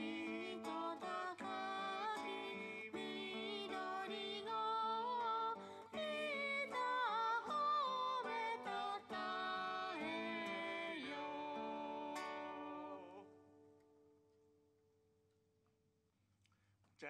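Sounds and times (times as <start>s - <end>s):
person singing: 0.0s - 13.4s
acoustic guitar: 0.0s - 15.4s.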